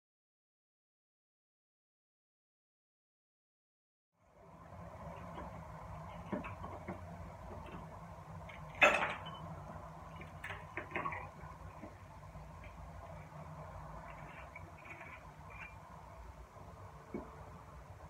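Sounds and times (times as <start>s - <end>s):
low hum: 4.2s - 18.0s
dishes and utensils clinking: 8.7s - 9.5s.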